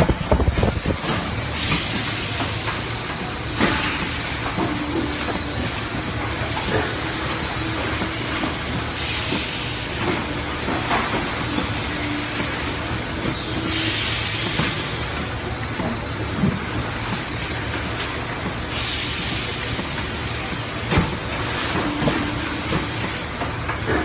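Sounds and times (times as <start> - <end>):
machine air hiss: 0.0 - 15.2, 16.8 - 23.9.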